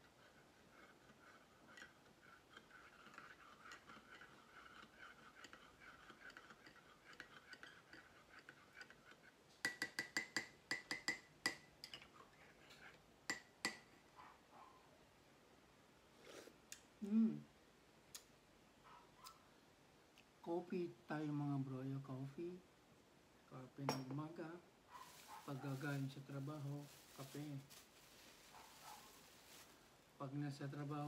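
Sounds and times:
spoon stirring coffee in a cup: 0.0 - 13.9, 25.0 - 27.7.

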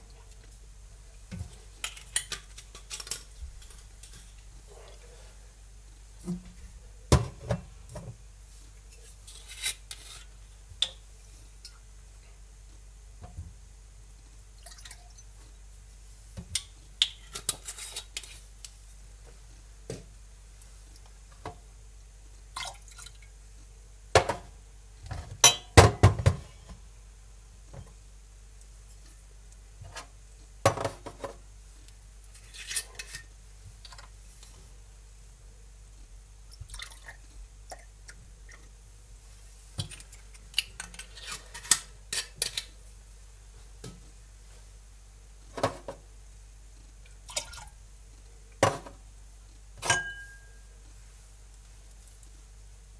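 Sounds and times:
liquid pouring: 36.6 - 37.8
glass bottles clinking on counter: 49.8 - 50.5.

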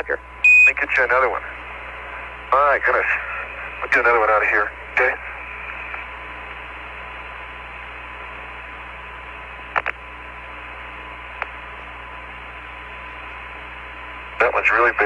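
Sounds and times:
radio hiss: 0.0 - 15.0
radio clicks: 5.6 - 6.7, 9.7 - 10.1, 11.3 - 12.0.

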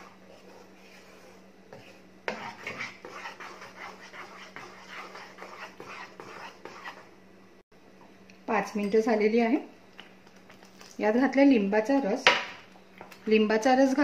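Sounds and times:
wooden spatula scraping thick pulp: 0.0 - 7.1.

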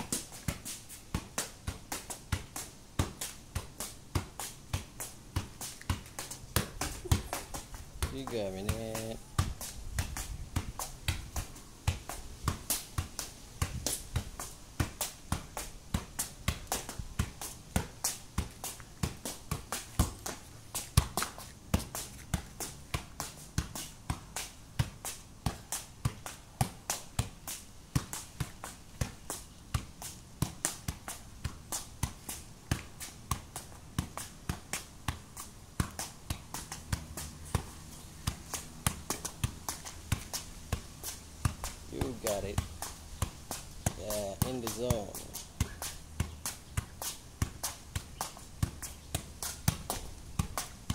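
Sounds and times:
football taps on foot: 1.2 - 20.4, 41.5 - 50.9.

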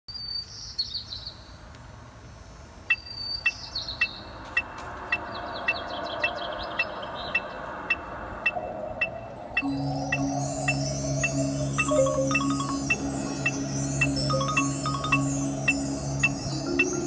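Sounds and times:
electronic metronome beeps: 7.9 - 17.0
bird trilling: 9.0 - 17.0.

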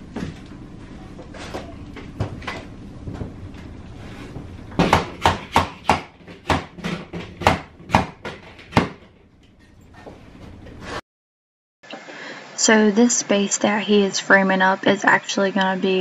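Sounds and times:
hammer striking nails: 4.8 - 9.0.

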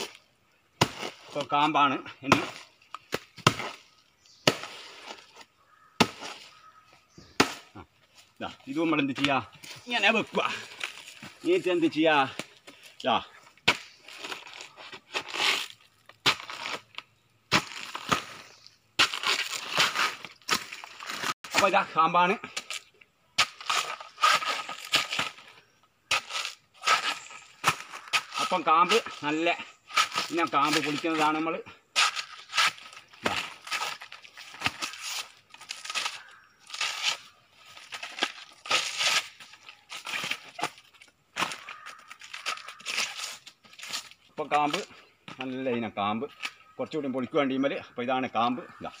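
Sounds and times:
plant sheaths crunching and ripping: 8.9 - 21.8, 22.5 - 44.9
banana stem cracking and tearing: 32.0 - 44.9.

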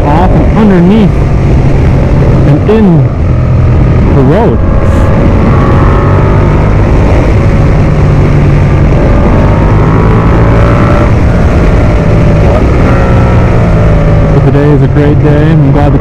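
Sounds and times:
motorcycle engine running: 0.0 - 16.0
wind noise on microphone: 0.0 - 16.0.

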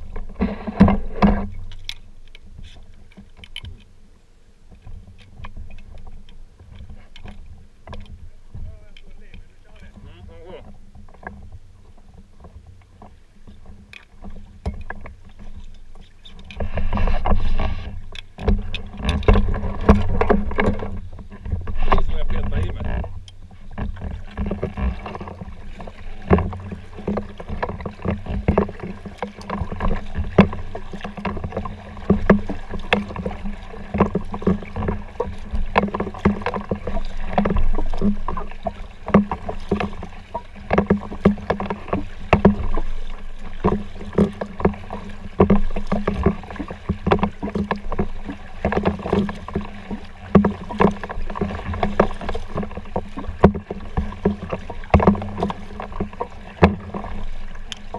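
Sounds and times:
paddle strokes with water splashing: 0.0 - 57.9.

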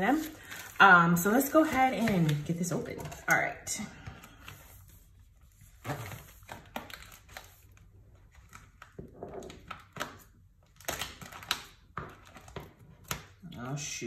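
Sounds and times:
packaging rustling and tearing: 4.2 - 13.4.

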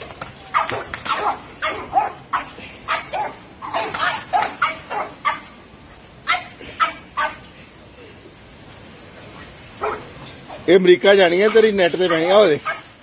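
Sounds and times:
small dogs barking: 0.5 - 5.6, 6.2 - 7.5, 9.8 - 10.7, 11.4 - 13.0.

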